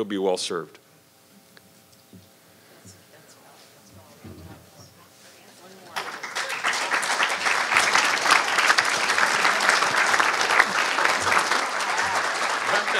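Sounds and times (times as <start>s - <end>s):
audience applauding: 5.9s - 12.9s.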